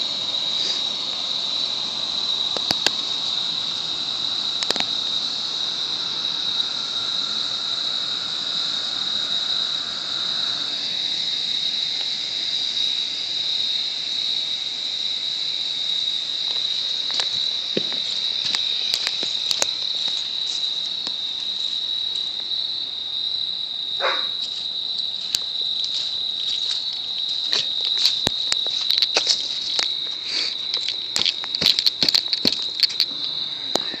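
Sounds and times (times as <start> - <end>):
faint hiss: 0.0 - 22.5, 29.5 - 30.7
crickets chirping: 0.0 - 34.0
sharp clicks: 2.5 - 3.0.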